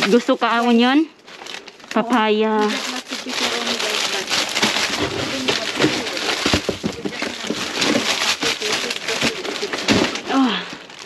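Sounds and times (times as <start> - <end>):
plastic packaging crinkling: 0.0 - 11.0
packs knocking down: 4.5 - 10.6.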